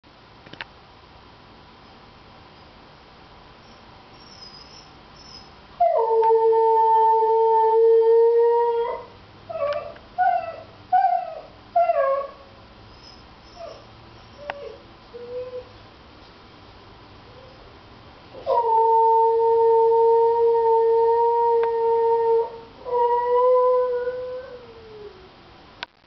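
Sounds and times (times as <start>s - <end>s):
dog howling: 18.4s - 25.3s.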